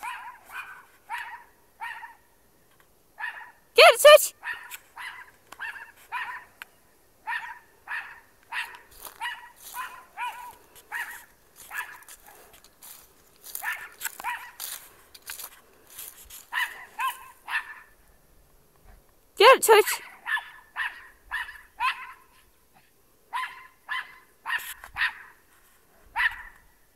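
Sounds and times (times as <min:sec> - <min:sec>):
small dog barking: 0:00.0 - 0:02.2, 0:03.2 - 0:06.6, 0:07.2 - 0:12.4, 0:13.6 - 0:14.7, 0:16.5 - 0:17.9, 0:19.7 - 0:22.4, 0:23.3 - 0:25.3, 0:26.1 - 0:26.6.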